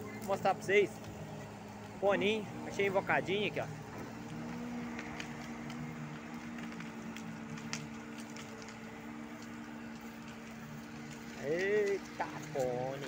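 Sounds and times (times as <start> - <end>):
diesel engine humming: 0.0 - 13.0
faint clicks and ticks: 2.7 - 13.0.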